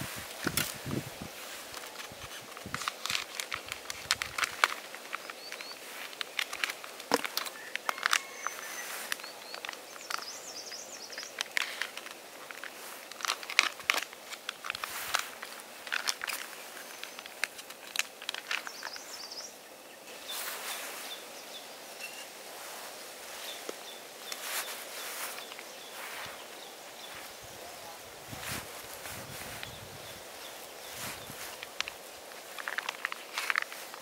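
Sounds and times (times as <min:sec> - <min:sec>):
close rustling: 0:00.0 - 0:19.5, 0:20.1 - 0:34.0
camp cooking gear clicking: 0:00.3 - 0:19.6, 0:28.7 - 0:34.0
faint bird chirps: 0:07.6 - 0:11.4, 0:18.6 - 0:22.4.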